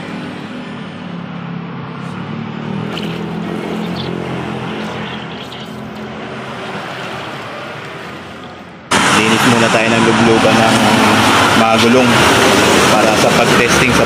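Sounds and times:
water sloshing and splashing: 0:02.0 - 0:08.8.

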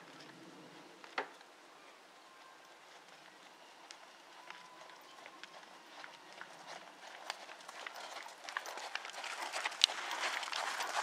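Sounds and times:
horse hoofbeats on sand: 0:02.7 - 0:11.0.

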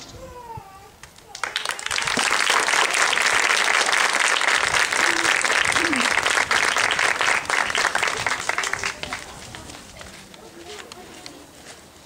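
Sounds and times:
audience applauding: 0:01.3 - 0:09.8.

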